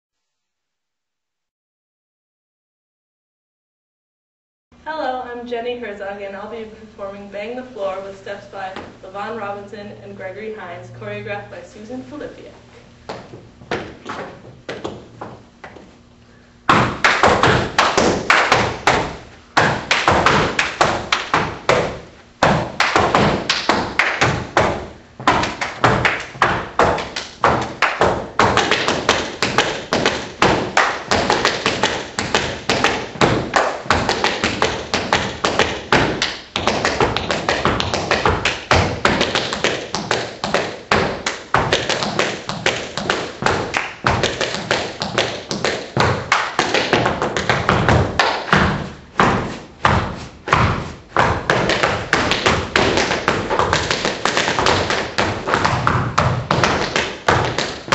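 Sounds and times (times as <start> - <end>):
tap shoes striking floor: 13.1 - 16.0, 16.7 - 57.9.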